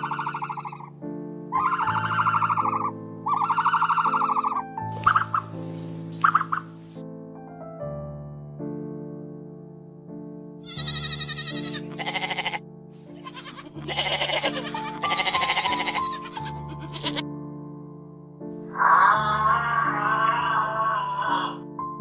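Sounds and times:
soft piano music: 0.0 - 22.0
goats bleating: 10.7 - 12.6, 13.2 - 17.2, 18.7 - 21.6.

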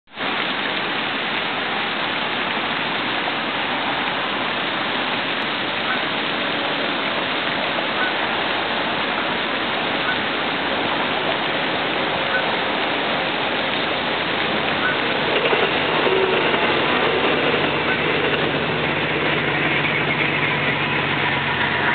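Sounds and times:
fountain spray splashing on water: 0.1 - 21.9.

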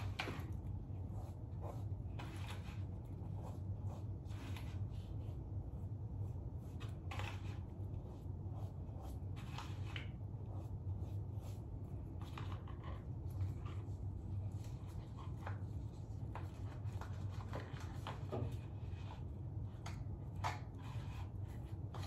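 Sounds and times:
brushing and rustling scrapes: 0.0 - 22.0
steady low hum: 0.0 - 22.0.

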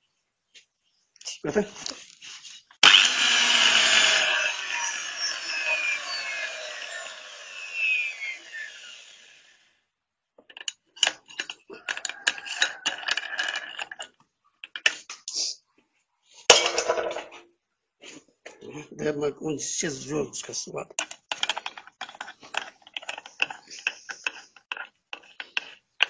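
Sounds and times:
angle grinder winding down: 2.8 - 9.7.

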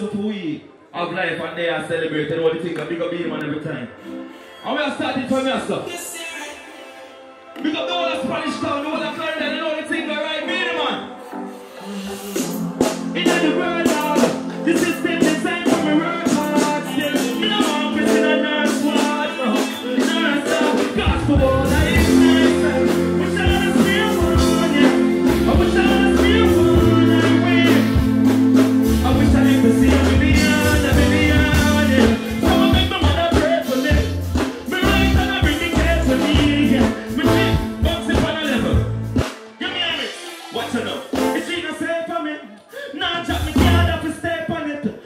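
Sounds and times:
live music through speakers: 0.0 - 45.0
man singing into a microphone: 13.2 - 28.2, 28.8 - 38.8
deep bass line: 21.0 - 39.2, 43.3 - 44.1.

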